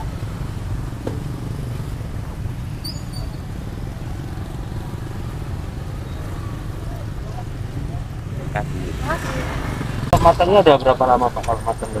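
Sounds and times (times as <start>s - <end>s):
street rumble: 0.0s - 12.0s
high chirps: 2.8s - 3.5s.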